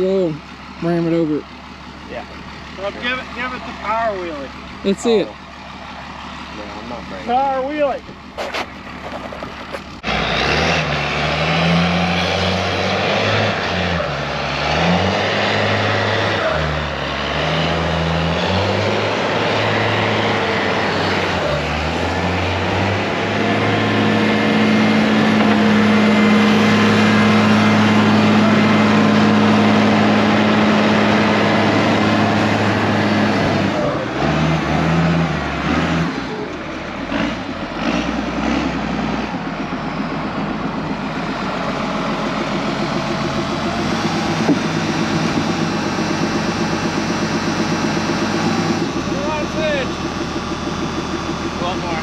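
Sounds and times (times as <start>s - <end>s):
vehicle engine revving: 0.0s - 52.0s.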